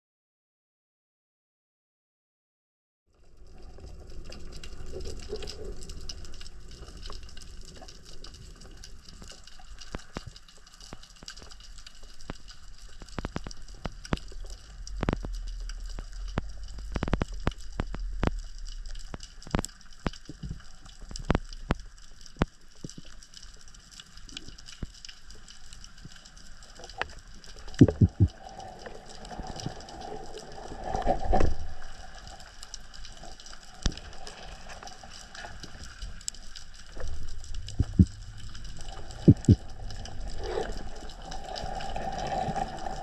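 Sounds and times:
sharp underwater clicks and knocks: 5.0s - 28.5s, 33.8s - 41.2s
water rushing past microphone: 26.8s - 43.0s.

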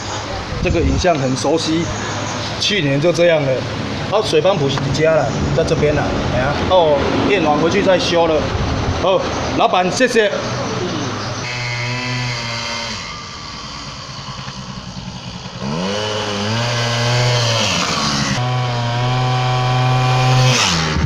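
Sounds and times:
scooter engine accelerating: 10.4s - 21.0s.

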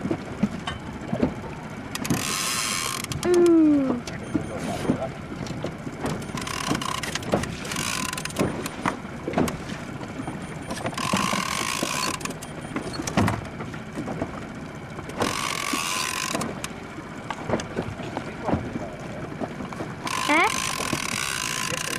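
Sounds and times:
rod and reel clicks: 1.9s - 4.2s, 6.2s - 8.8s, 10.7s - 13.2s, 15.1s - 17.7s, 20.0s - 21.9s
fishing reel whirring: 2.1s - 3.4s, 6.3s - 8.4s, 11.0s - 12.4s, 15.2s - 16.5s, 20.0s - 21.9s.

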